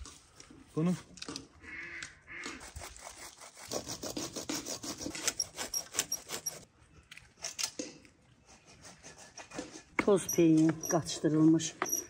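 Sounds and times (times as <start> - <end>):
hand saw cutting a branch: 2.4 - 6.7, 8.5 - 11.6.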